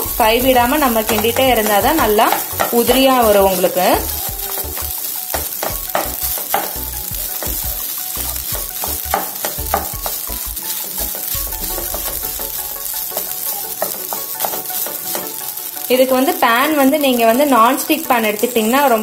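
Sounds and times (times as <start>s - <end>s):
spatula scraping a pan: 0.0s - 17.9s
oil sizzling: 0.0s - 19.0s.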